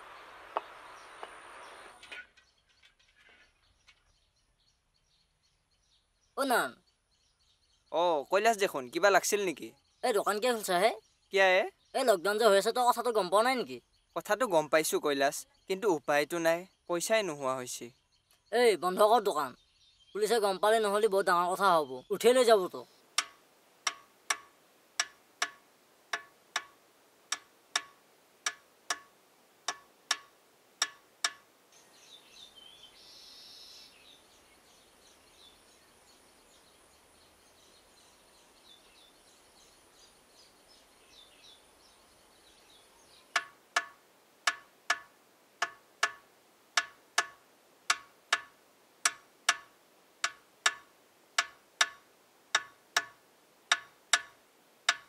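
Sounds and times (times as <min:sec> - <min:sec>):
faint bird chirps: 0:00.0 - 0:25.6, 0:26.2 - 0:55.0
clock ticking: 0:23.2 - 0:29.1, 0:29.7 - 0:31.4, 0:43.4 - 0:46.2, 0:46.8 - 0:55.0.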